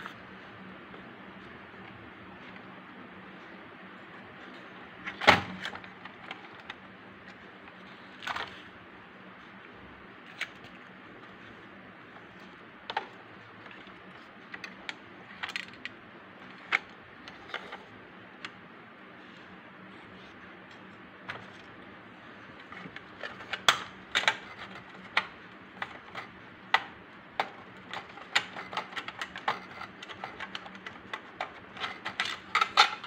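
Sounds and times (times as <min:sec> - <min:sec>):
toy parts clicking and tapping: 0:22.6 - 0:33.0.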